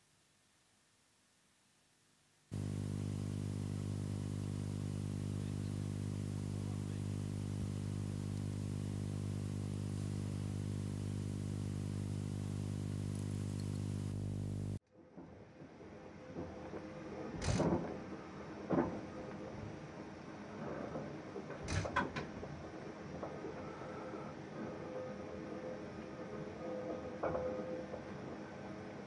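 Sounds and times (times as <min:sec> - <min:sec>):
low electrical hum: 0:00.0 - 0:14.8.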